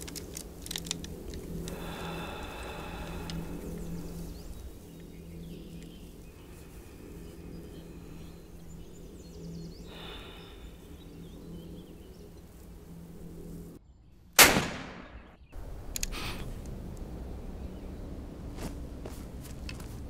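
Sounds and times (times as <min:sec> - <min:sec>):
low steady drone: 0:00.0 - 0:20.0
loud rifle shot: 0:14.4 - 0:15.3.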